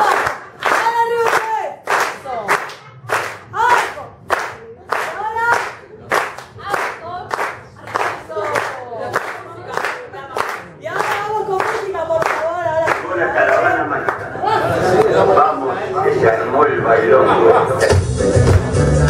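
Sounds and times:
crowd clapping in time: 0.0 - 14.3.

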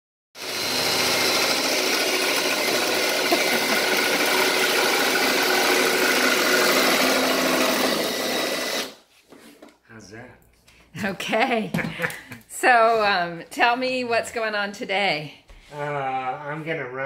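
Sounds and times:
cordless drill boring wood: 0.4 - 9.0.

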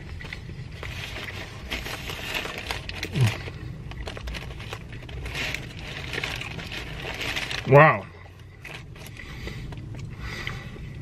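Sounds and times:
man chewing food: 8.2 - 11.0
soft breathing: 8.2 - 11.0.

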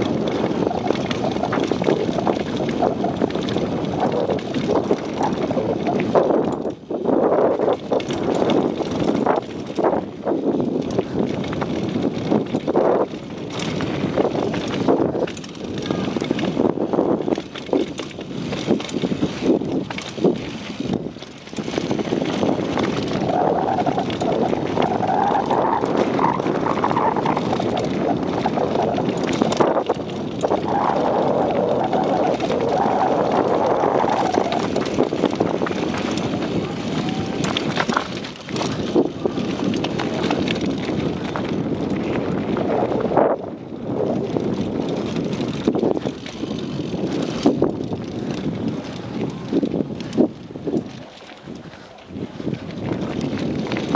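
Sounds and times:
bike rattling and knocking: 0.0 - 53.9
bike tyres on dirt trail: 0.0 - 53.9.

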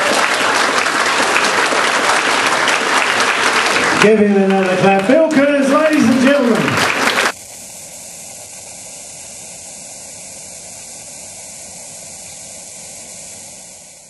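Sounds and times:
applause: 0.0 - 7.4
static hiss: 0.0 - 14.0
people talking: 3.8 - 6.9.

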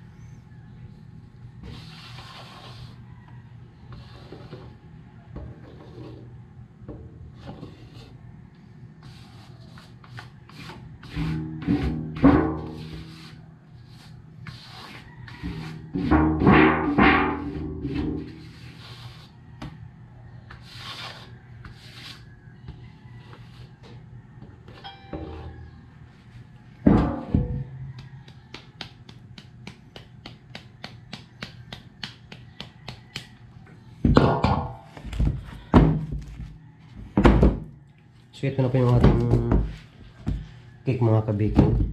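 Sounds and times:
spatula scraping batter from bowl: 9.0 - 16.1
bowl ringing with low tone: 24.8 - 25.7.

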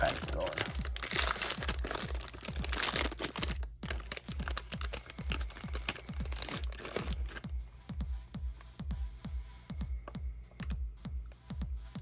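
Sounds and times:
foil wrapper crinkling: 0.0 - 7.4
electronic music with beat: 0.0 - 12.0.

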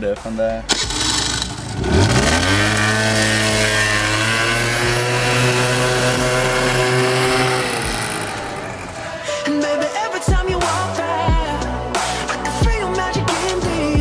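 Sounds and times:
scooter engine running: 0.7 - 9.4.

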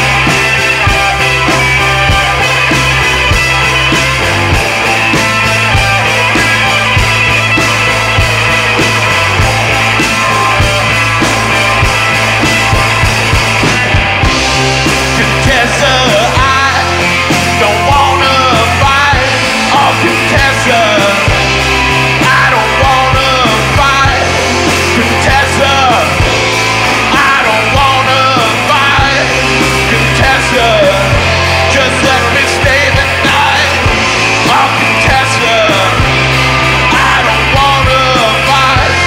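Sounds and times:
electric guitar: 0.0 - 39.0
rock band playing live: 0.0 - 39.0
man singing: 13.7 - 39.0.

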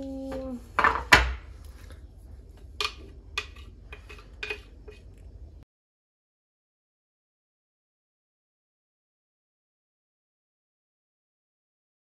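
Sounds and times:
spoon scraping cup: 2.8 - 5.3.

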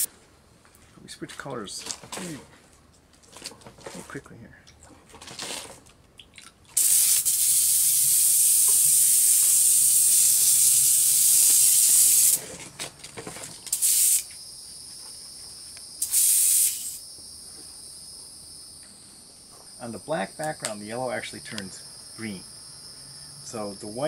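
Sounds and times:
airbrush spraying hiss: 6.8 - 12.4, 13.7 - 14.3, 16.0 - 17.0.

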